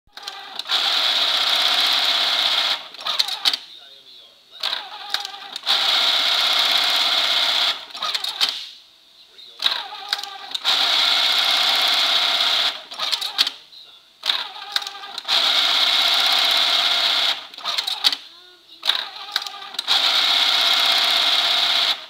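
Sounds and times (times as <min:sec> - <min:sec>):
sewing machine whirring: 0:00.1 - 0:03.6, 0:04.6 - 0:08.6, 0:09.6 - 0:13.6, 0:14.2 - 0:18.2, 0:18.8 - 0:22.0
machine clicks and clatter: 0:04.6 - 0:08.6, 0:09.6 - 0:13.6, 0:14.2 - 0:18.2, 0:18.8 - 0:22.0.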